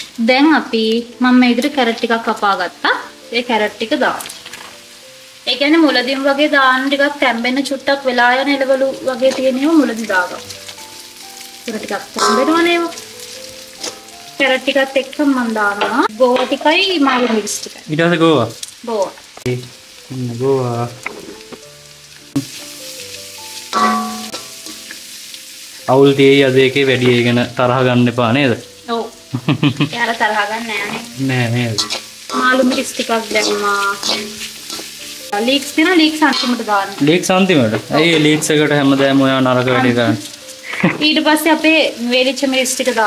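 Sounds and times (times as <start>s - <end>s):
vegetables sizzling in oil: 0.0s - 43.0s
music with held notes: 1.0s - 43.0s
metal spatula scraping wok: 23.6s - 25.1s, 30.8s - 35.2s, 35.9s - 37.0s.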